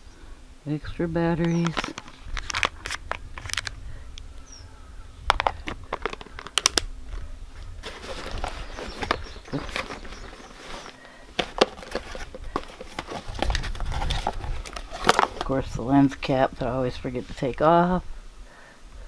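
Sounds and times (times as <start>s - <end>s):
plastic box clicks and rattles: 1.5s - 3.7s, 5.3s - 6.9s, 7.8s - 15.5s
rummaging inside a backpack: 1.5s - 3.7s, 5.3s - 15.6s
crinkly rustling: 1.5s - 3.8s, 5.3s - 15.6s.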